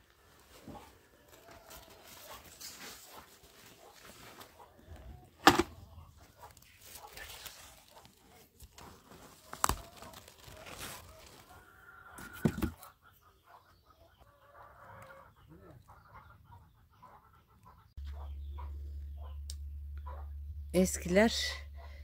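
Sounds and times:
chickens clucking: 0.6s - 7.2s, 9.7s - 19.4s.

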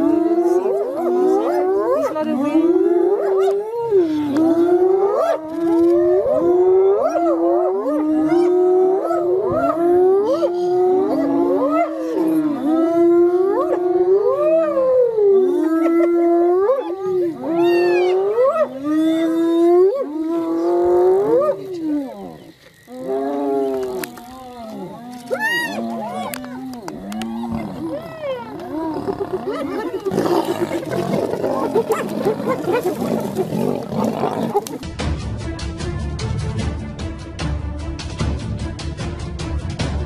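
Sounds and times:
animals howling: 0.0s - 34.8s.

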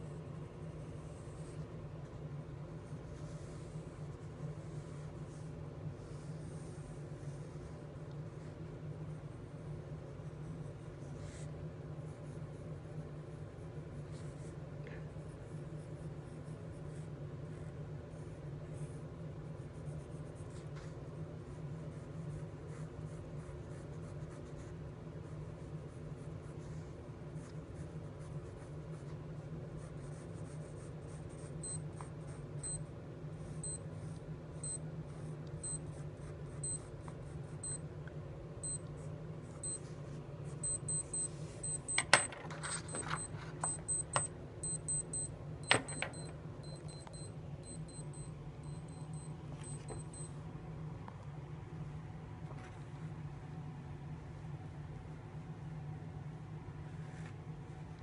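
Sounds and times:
pencil scratching on paper: 0.0s - 32.6s
digital watch timer beeping: 31.6s - 31.8s, 32.6s - 32.8s, 33.6s - 33.8s, 35.6s - 35.8s, 37.6s - 37.8s, 38.6s - 38.8s, 40.6s - 50.4s.

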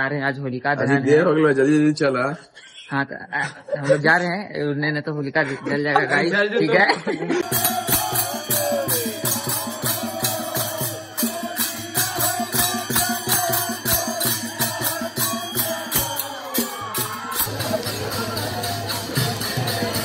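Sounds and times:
folk music with percussion beat: 7.4s - 20.0s.

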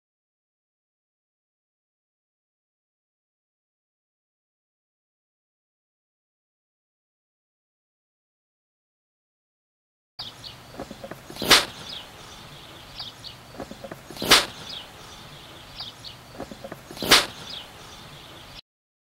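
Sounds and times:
sharp cracks: 10.7s - 12.5s, 13.6s - 15.2s, 16.4s - 17.9s.

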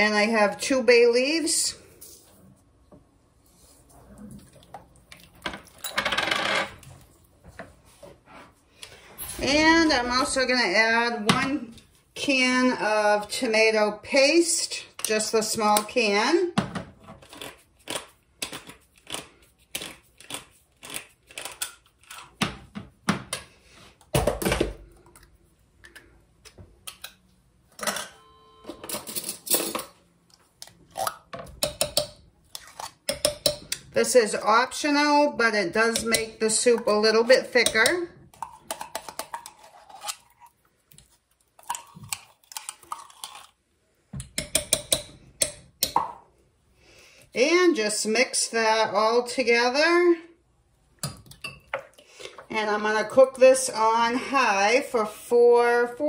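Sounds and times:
faint ringing note: 28.0s - 29.1s.

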